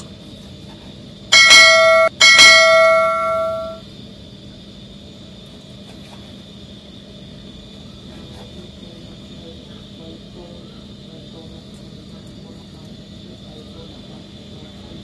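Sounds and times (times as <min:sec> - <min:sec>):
bright bell dings: 0:01.3 - 0:03.8.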